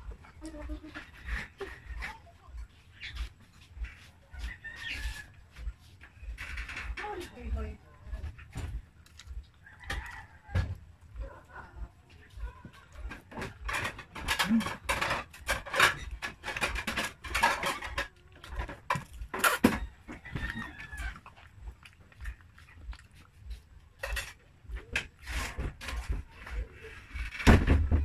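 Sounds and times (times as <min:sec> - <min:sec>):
chewing and slurping noodles: 0:18.4 - 0:26.0.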